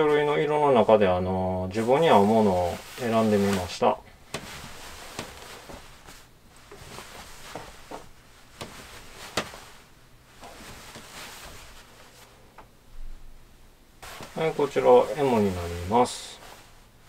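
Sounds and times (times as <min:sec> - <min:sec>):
cloth rustling: 0:01.7 - 0:17.0.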